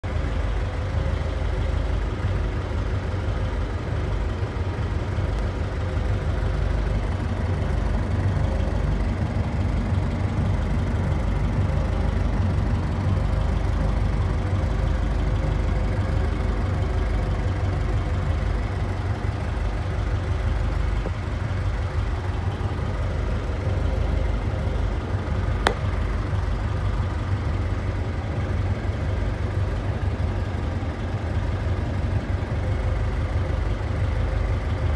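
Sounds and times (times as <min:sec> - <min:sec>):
car engine idling: 0:00.0 - 0:34.9
sharp click: 0:25.6 - 0:25.9.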